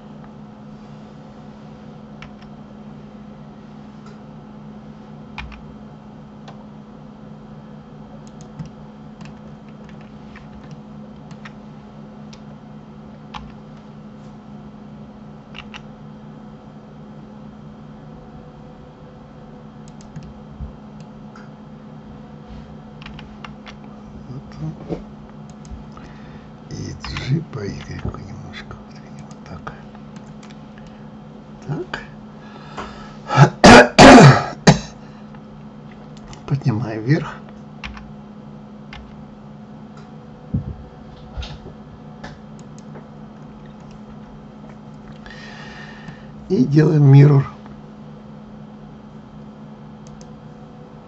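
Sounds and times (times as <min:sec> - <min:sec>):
steady low hum: 0:00.0 - 0:51.0
keyboard keys clicking: 0:05.4 - 0:05.6, 0:08.3 - 0:11.6, 0:15.5 - 0:15.9, 0:19.8 - 0:20.4, 0:23.0 - 0:23.9, 0:29.2 - 0:30.6, 0:37.8 - 0:38.1
computer mouse clicks: 0:08.2 - 0:11.6, 0:15.5 - 0:15.9, 0:19.8 - 0:20.4, 0:25.4 - 0:26.0, 0:29.2 - 0:29.4, 0:30.0 - 0:31.0, 0:35.9 - 0:36.5, 0:42.6 - 0:42.9, 0:43.6 - 0:44.1, 0:50.0 - 0:50.4
person coughing: 0:33.3 - 0:35.0.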